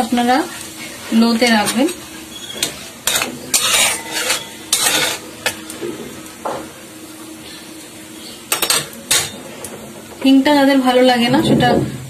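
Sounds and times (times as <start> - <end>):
oil sizzling: 0.0 - 11.4
metal spatula scraping a pan: 1.5 - 5.6.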